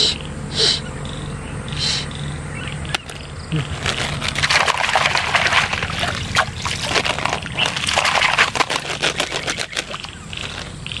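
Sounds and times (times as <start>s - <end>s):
water splashing: 3.6s - 10.8s
plastic toys rattling in colander: 3.7s - 10.7s.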